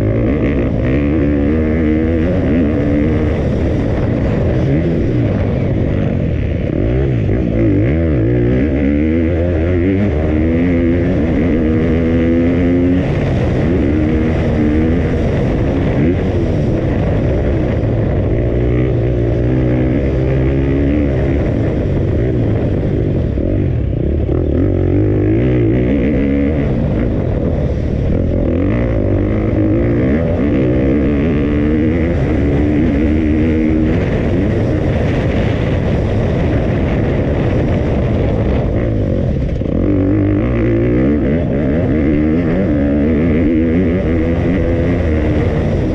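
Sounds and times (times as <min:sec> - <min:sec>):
motocross bike engine revving: 0:00.0 - 0:45.9.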